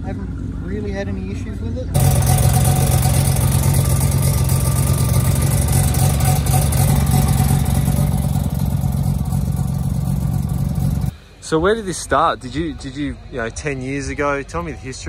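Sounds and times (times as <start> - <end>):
rotary engine running: 2.0 - 11.1.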